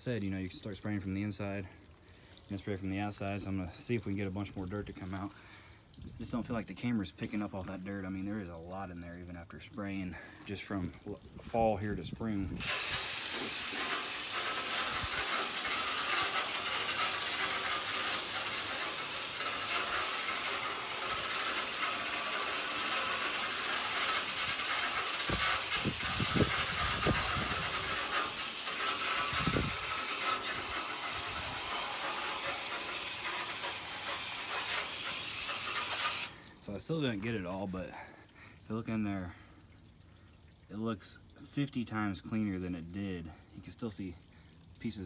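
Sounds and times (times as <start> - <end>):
hose water spraying: 6.0 - 37.9.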